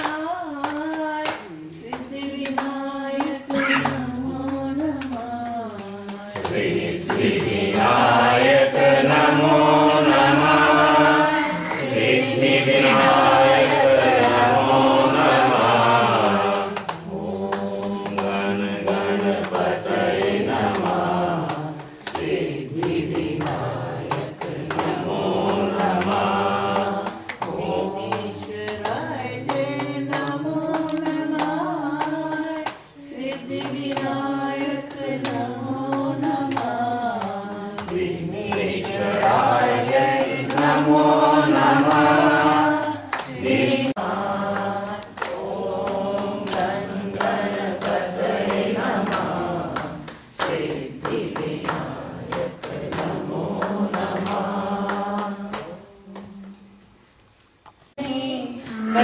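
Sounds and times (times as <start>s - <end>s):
group of voices chanting: 3.5s - 4.2s, 6.3s - 30.4s, 33.2s - 56.4s, 58.0s - 59.0s.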